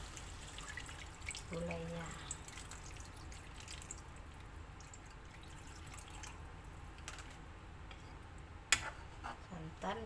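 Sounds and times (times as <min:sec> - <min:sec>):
liquid trickle into pan: 0:00.0 - 0:07.4.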